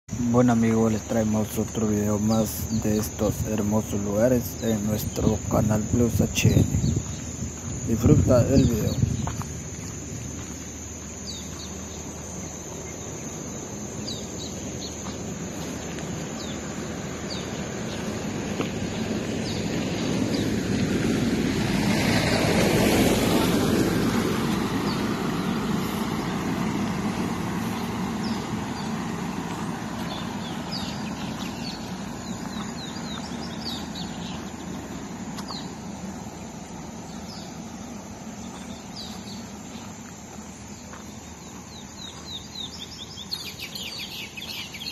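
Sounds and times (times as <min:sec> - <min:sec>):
birds chirping: 0:00.1 - 0:44.9
tyres on gravel: 0:00.1 - 0:44.9
car engine passing: 0:09.5 - 0:39.9.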